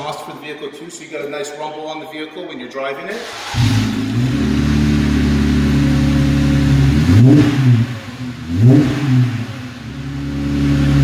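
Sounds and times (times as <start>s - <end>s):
car engine idling and revving: 3.2s - 11.0s.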